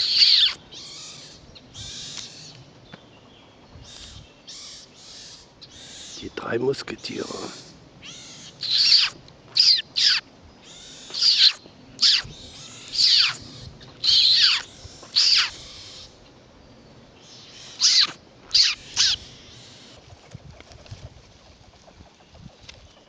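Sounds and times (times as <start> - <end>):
high falling squeals of young animals: 0.0 - 2.5, 8.0 - 16.1, 17.6 - 20.0.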